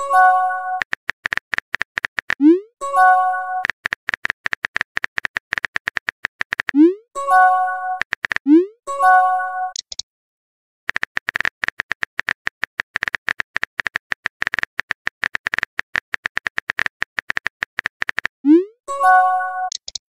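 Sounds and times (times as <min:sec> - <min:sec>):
text message chime: 0:02.6 - 0:03.6, 0:07.2 - 0:08.0, 0:08.6 - 0:09.8, 0:18.5 - 0:19.8
keyboard tap clicks: 0:03.6 - 0:06.8, 0:10.9 - 0:18.3.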